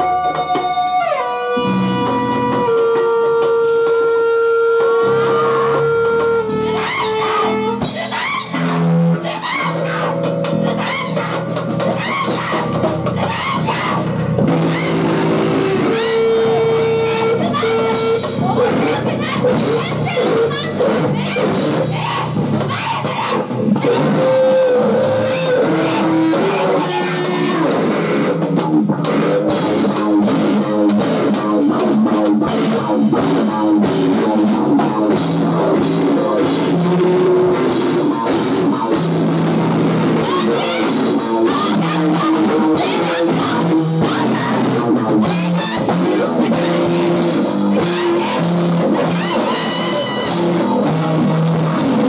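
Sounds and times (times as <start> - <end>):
live rock band playing: 0.0 - 22.7, 23.3 - 52.0
woman singing: 40.2 - 44.7.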